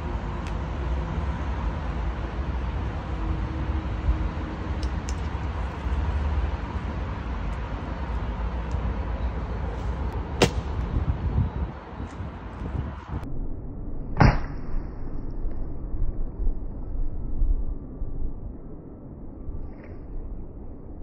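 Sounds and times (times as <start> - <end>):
low rumble: 9.8 - 21.0.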